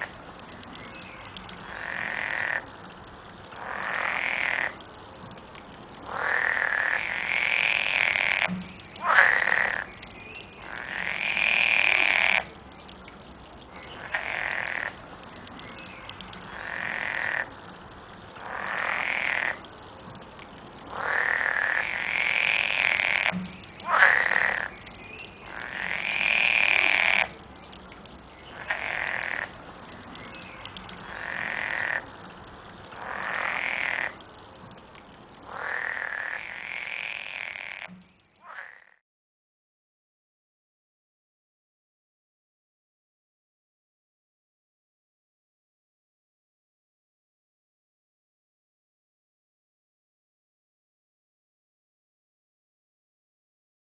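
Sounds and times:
frogs croaking in chorus: 0.0 - 2.8, 3.5 - 4.8, 6.0 - 17.7, 18.3 - 19.7, 20.8 - 34.3, 35.4 - 39.0.

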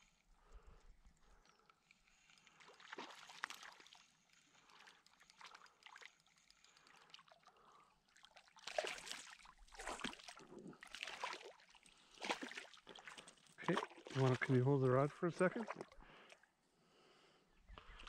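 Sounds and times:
fish splashing in water: 2.5 - 14.6.

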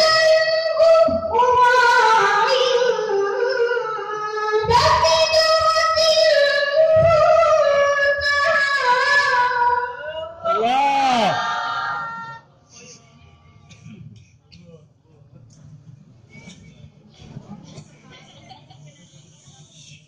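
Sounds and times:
boy reciting melodically: 0.0 - 11.4.

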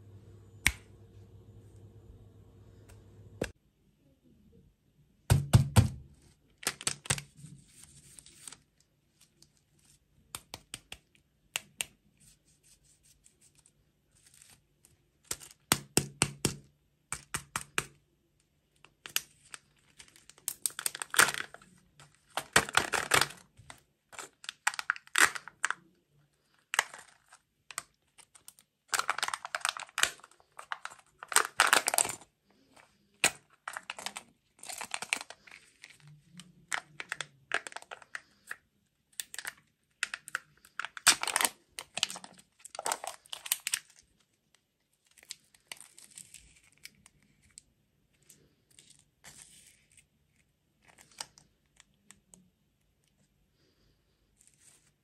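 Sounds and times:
foil wrapper crinkling and tearing: 6.6 - 10.0, 18.8 - 38.6, 39.2 - 47.6, 50.8 - 52.2.

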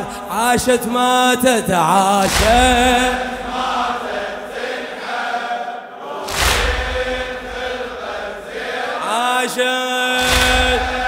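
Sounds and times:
lead reciter's voice: 0.0 - 11.0
men chanting in unison: 0.0 - 11.0
chest-beating strike: 6.3 - 7.9, 10.2 - 11.0.

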